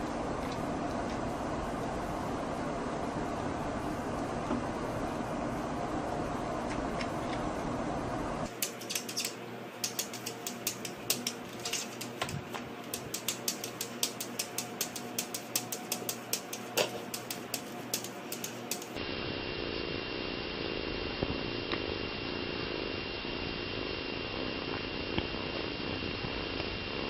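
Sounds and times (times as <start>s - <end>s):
claws clicking on mirror: 8.5s - 19.0s.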